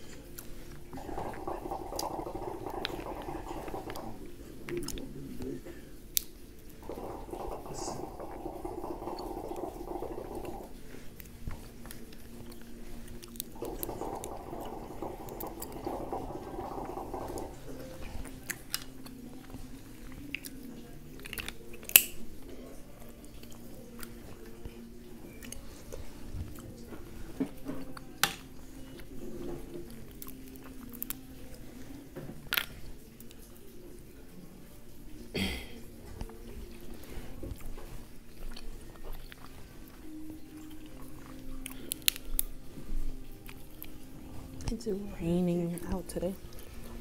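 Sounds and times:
chewing and biting: 0.0s - 31.6s, 36.0s - 44.6s
mussel shells clicking and snapping: 0.2s - 22.4s, 27.4s - 29.1s, 29.8s - 31.3s, 40.8s - 44.0s.

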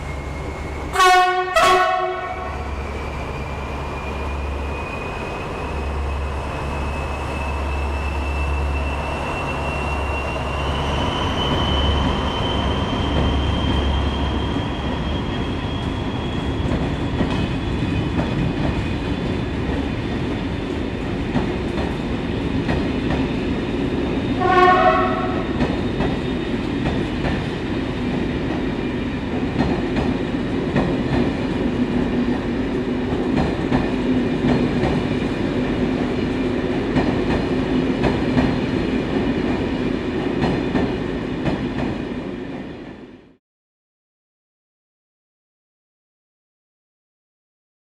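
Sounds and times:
train horn blast: 0.9s - 2.7s, 24.4s - 25.6s.

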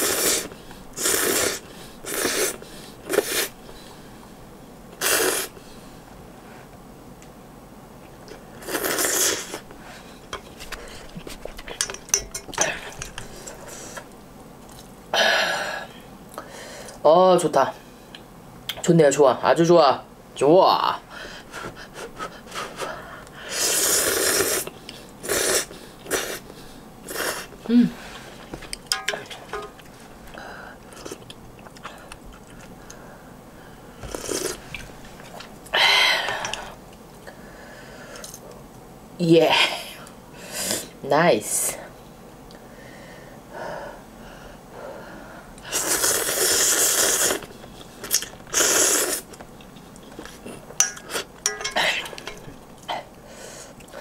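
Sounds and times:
noodles slurped: 23.5s - 26.4s, 45.7s - 49.4s.

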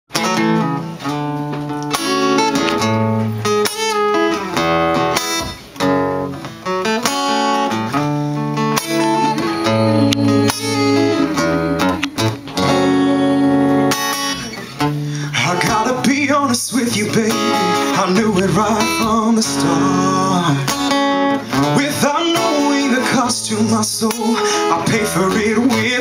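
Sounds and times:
acoustic guitar strumming chords: 0.1s - 26.0s.

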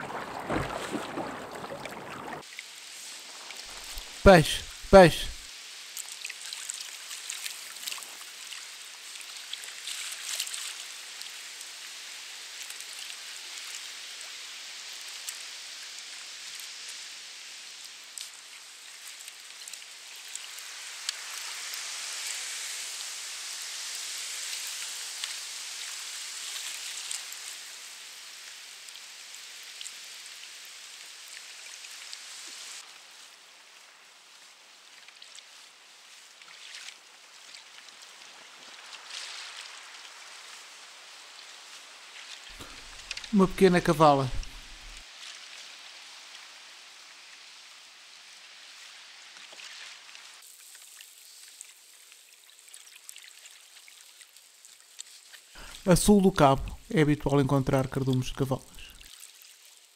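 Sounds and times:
sea water splashing against hull: 0.0s - 2.4s.

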